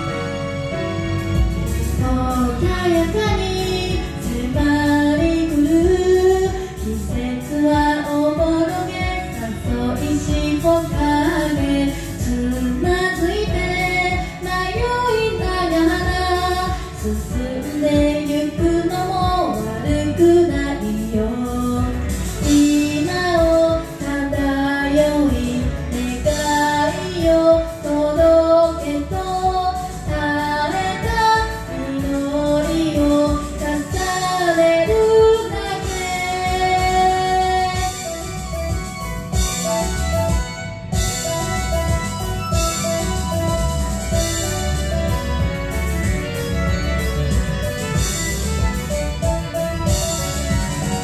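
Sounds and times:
karaoke backing track: 0.0s - 51.0s
woman singing pop song: 1.8s - 39.4s.

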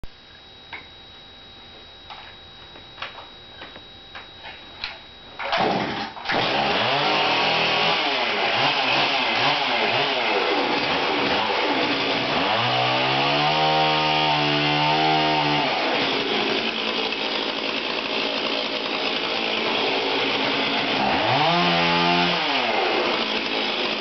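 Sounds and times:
chainsaw running: 5.4s - 24.0s.

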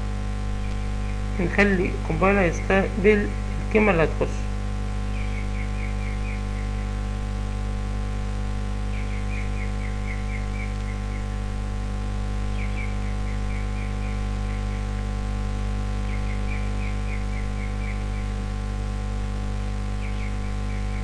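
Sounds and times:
electrical mains hum: 0.0s - 21.0s
faint high ticks: 0.6s - 0.9s.

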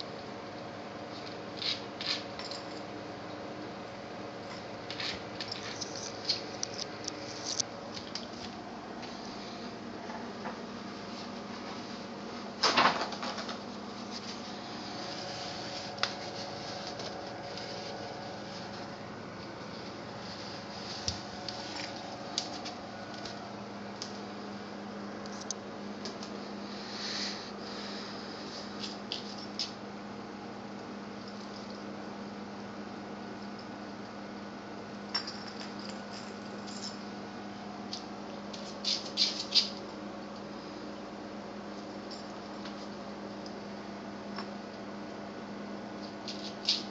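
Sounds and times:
steady hum: 0.0s - 46.9s
dog claws scratching on tile: 1.1s - 2.4s, 4.9s - 8.6s, 38.5s - 39.8s, 46.0s - 46.9s.

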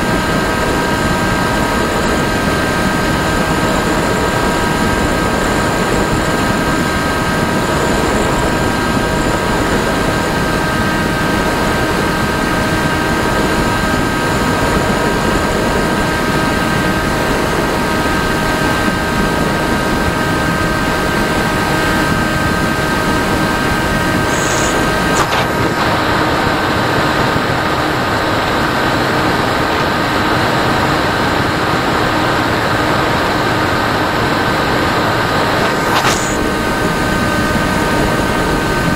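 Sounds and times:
electric motor and propeller whine: 0.0s - 38.9s
rushing airflow: 19.2s - 38.9s.

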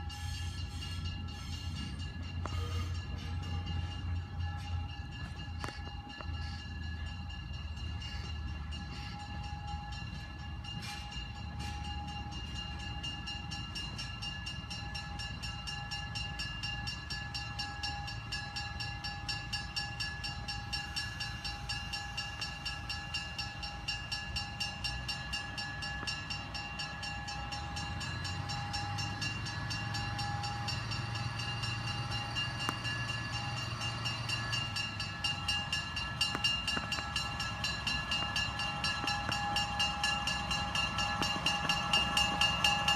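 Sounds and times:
diesel railcar engine rumble: 0.0s - 42.9s.

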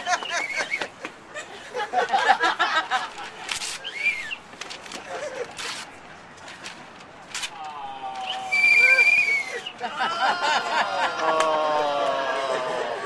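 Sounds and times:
people laughing: 0.0s - 3.8s, 4.8s - 5.8s, 8.0s - 13.0s
paper tearing: 5.6s - 5.9s
people talking: 7.6s - 13.0s.

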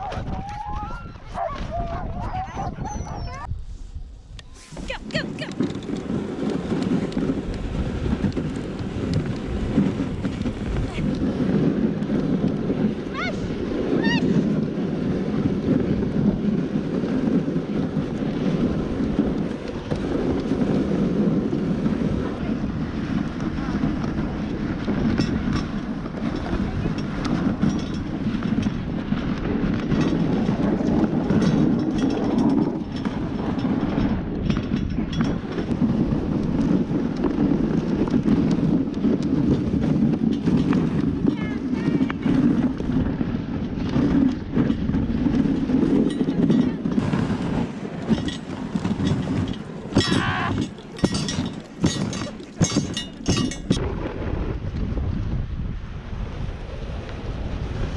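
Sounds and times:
sled runners scraping over snow: 0.0s - 55.3s, 56.1s - 57.9s
sled runners hissing on snow: 3.6s - 24.0s, 46.9s - 49.4s.

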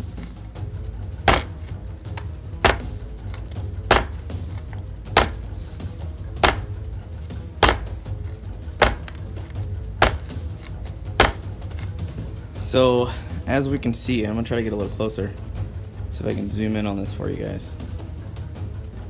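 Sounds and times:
knife tip knocking wooden board: 1.3s - 1.7s, 2.6s - 2.9s, 3.9s - 4.2s, 5.2s - 5.4s, 6.4s - 6.7s, 7.6s - 8.0s, 8.8s - 9.2s, 10.0s - 10.4s, 11.2s - 11.9s.

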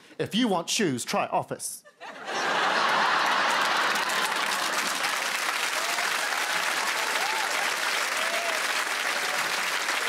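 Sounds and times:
studio audience applauding: 2.3s - 10.0s.

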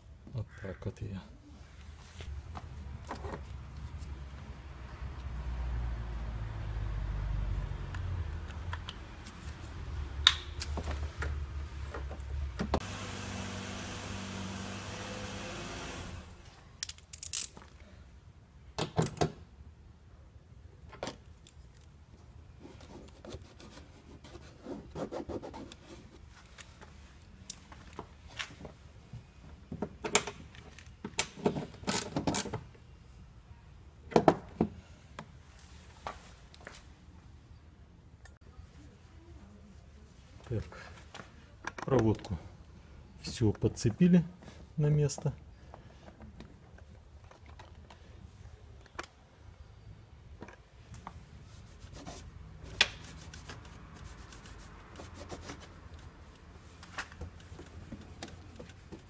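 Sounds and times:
hands handling plastic parts: 16.8s - 17.8s.

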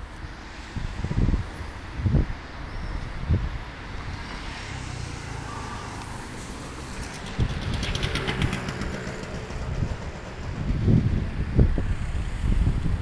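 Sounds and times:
traffic on wet road: 0.0s - 13.0s
fast rattling tick: 6.9s - 11.3s.

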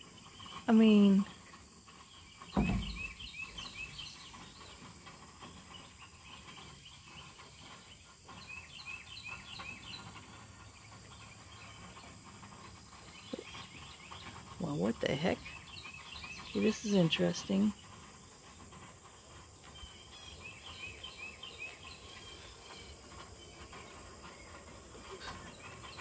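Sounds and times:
birds chirping: 0.0s - 26.0s
faint insect drone: 0.0s - 26.0s
low thump: 2.6s - 3.2s.

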